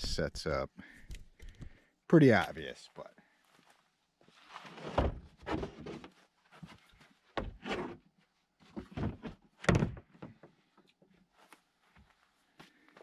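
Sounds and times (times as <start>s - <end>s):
dull wooden thunks: 8.7s - 10.5s.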